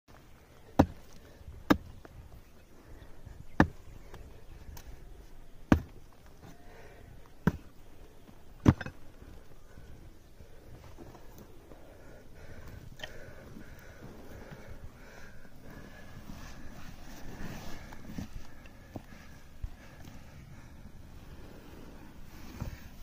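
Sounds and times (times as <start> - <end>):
pick striking earth and stone: 0.6 - 2.3, 3.4 - 4.9, 5.6 - 6.6, 7.4 - 9.1.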